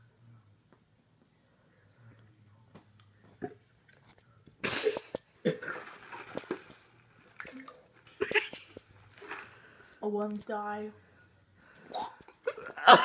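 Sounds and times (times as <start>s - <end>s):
person gagging and spitting: 4.6s - 6.8s, 11.8s - 13.0s.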